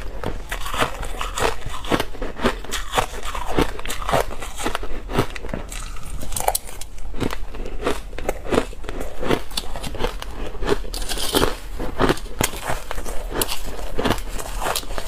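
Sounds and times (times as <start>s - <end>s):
crushed ice being chewed: 0.0s - 15.0s.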